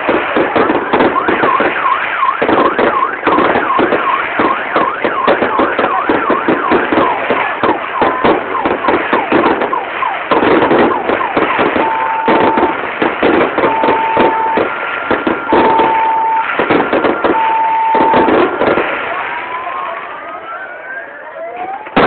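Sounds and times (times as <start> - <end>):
firework whistles: 0.0 - 20.0
fireworks bangs and crackling: 0.0 - 22.0
two-tone electronic alarm: 0.2 - 22.0.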